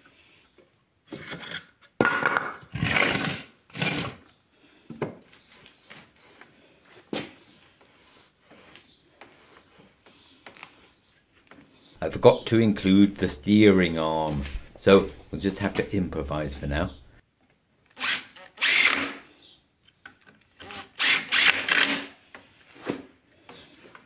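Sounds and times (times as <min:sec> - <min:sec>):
wood knocking and scraping: 0:14.2 - 0:16.0.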